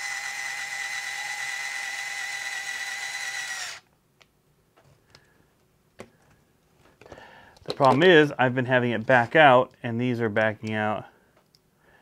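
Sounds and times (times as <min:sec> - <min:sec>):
electric screwdriver whining: 0:00.0 - 0:03.8.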